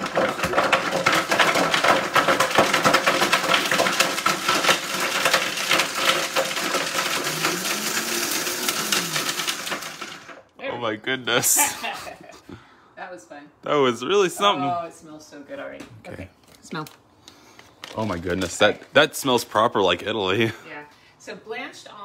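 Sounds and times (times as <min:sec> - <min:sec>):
hard pieces rattling in blender jar: 0:00.0 - 0:10.4
blender running at high speed: 0:05.8 - 0:10.4.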